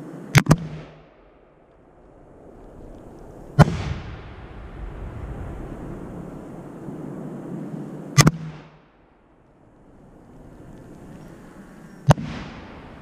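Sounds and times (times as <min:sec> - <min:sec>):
firework launch report: 0:00.4 - 0:09.4, 0:10.1 - 0:13.0
rumbling echo: 0:00.6 - 0:07.7, 0:12.1 - 0:13.0
firework bursting bang: 0:03.6 - 0:06.2.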